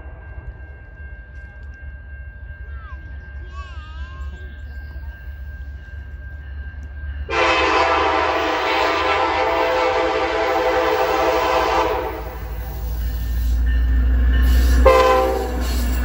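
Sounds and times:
locomotive engine rumble: 0.0 - 16.0
locomotive horn blast: 7.3 - 12.6, 14.8 - 15.8.

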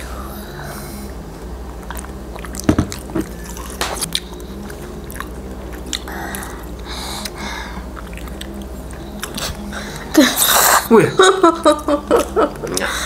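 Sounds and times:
chewing wet mouth sounds: 1.8 - 10.9.

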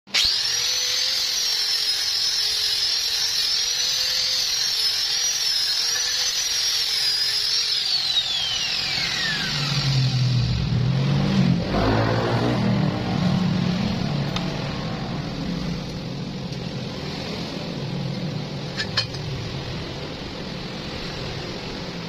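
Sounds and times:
angle grinder whining: 0.1 - 14.7.

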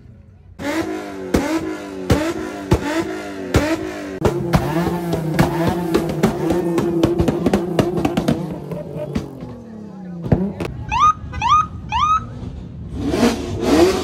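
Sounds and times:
car engine revving: 0.6 - 10.9, 11.6 - 14.0
exhaust popping and crackling: 1.3 - 10.8.

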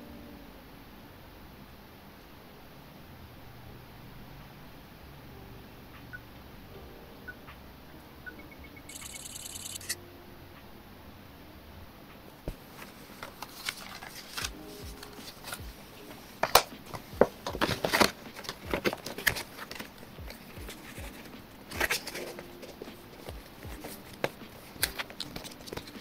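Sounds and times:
cardboard packaging crinkling: 12.7 - 15.6, 16.4 - 26.0.

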